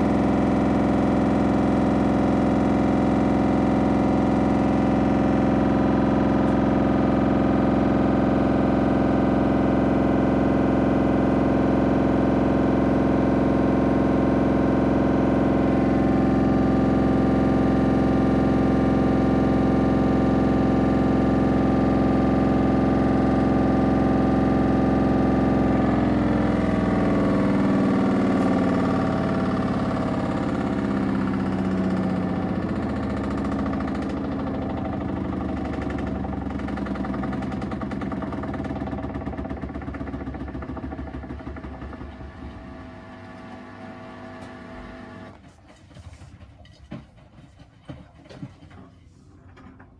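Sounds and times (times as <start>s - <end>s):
washing machine drum spinning: 0.0s - 49.9s
loud rattle: 28.2s - 42.8s.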